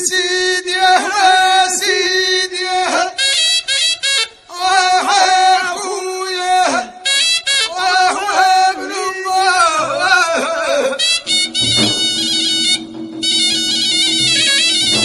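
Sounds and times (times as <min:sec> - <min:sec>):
person singing long sliding notes: 0:01.2 - 0:11.6
music: 0:03.2 - 0:04.4, 0:07.0 - 0:07.7, 0:11.0 - 0:15.0.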